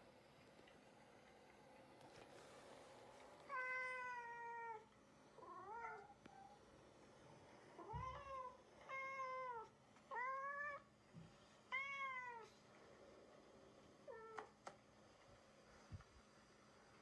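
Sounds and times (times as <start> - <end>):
cat meowing: 11.7 - 12.6.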